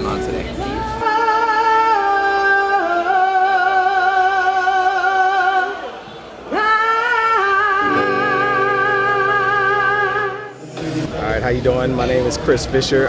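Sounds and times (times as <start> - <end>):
person singing with vibrato: 0.4 - 10.8.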